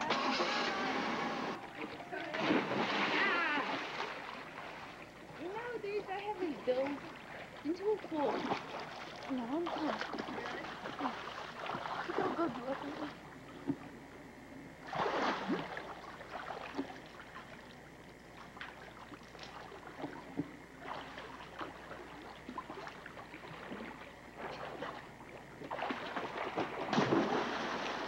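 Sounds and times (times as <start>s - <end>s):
water splashing in pool: 0.0s - 13.8s, 14.8s - 28.0s
big splash of person jumping: 2.3s - 4.3s, 14.9s - 15.8s, 25.7s - 28.0s.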